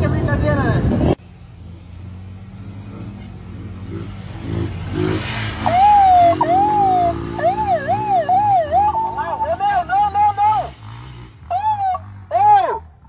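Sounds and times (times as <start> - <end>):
vehicle engine humming: 0.0 - 13.0
man imitating siren through megaphone: 5.6 - 10.6, 11.5 - 12.8.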